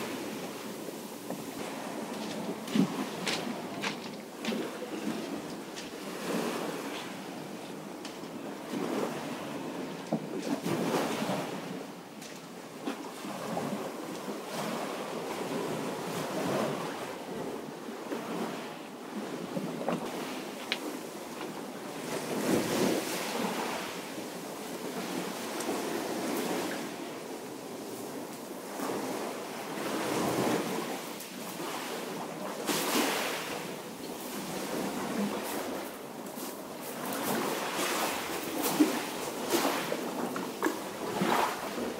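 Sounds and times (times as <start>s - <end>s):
waves washing over pebbles: 18.3s - 41.9s.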